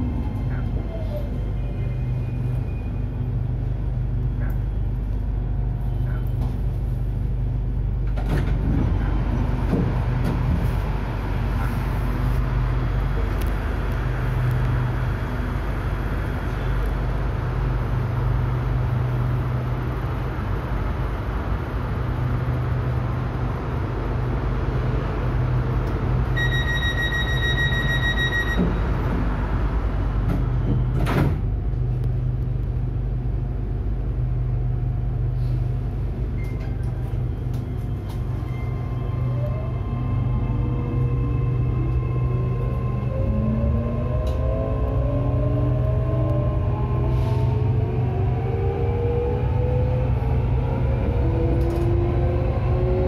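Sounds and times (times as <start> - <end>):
train equipment low hum: 0.0 - 53.0
high warning beep: 26.4 - 28.8.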